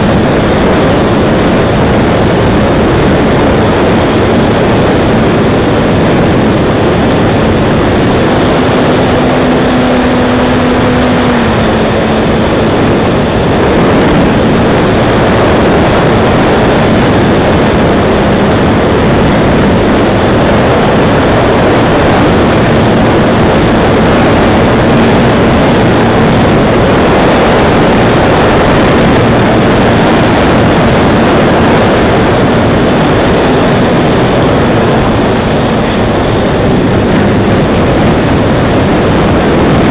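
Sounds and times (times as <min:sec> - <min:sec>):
propeller and wind rush: 0:00.0 - 0:39.9
electric motor hum: 0:04.3 - 0:14.9.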